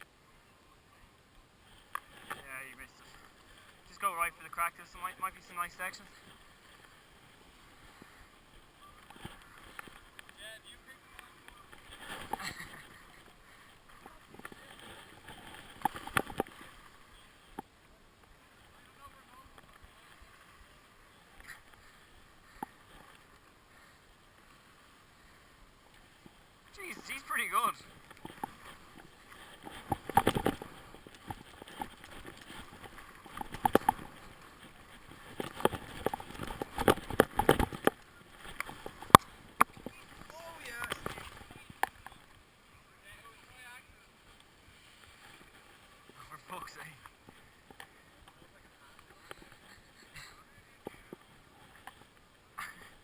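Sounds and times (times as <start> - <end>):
skis scraping over snow: 18.4 - 42.1.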